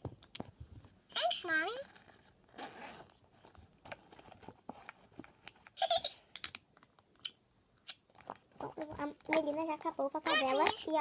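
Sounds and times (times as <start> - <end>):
high-pitched voice: 1.1 - 1.9, 8.6 - 11.0
soft rustle: 1.7 - 5.7
clicks and taps of handled toy: 6.3 - 7.3, 8.2 - 11.0.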